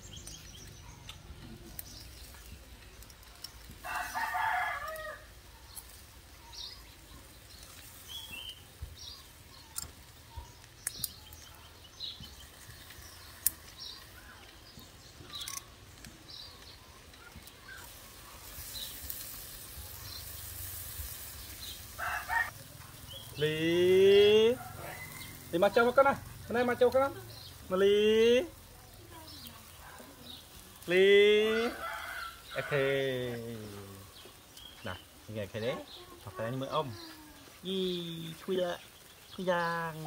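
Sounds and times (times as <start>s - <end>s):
small birds chirping: 0.0s - 40.0s
rooster crowing: 3.8s - 5.4s, 21.9s - 22.6s, 24.4s - 25.7s, 31.4s - 33.4s.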